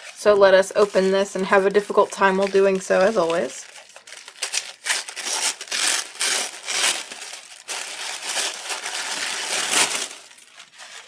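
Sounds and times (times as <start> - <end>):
tissue paper crinkling: 0.0 - 11.0.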